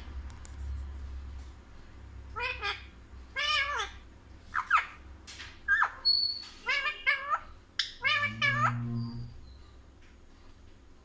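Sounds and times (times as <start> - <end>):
parakeet cries: 2.3 - 5.0, 5.7 - 9.4.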